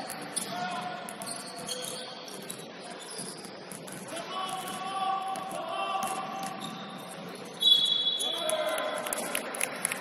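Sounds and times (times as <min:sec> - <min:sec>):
shoes squeaking on gym floor: 0:00.0 - 0:04.2, 0:06.4 - 0:08.2.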